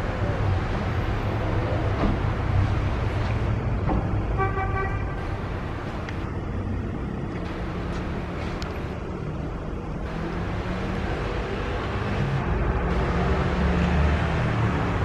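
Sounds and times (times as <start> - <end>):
traffic rumble: 0.0 - 15.0
car horn toot: 4.4 - 5.2.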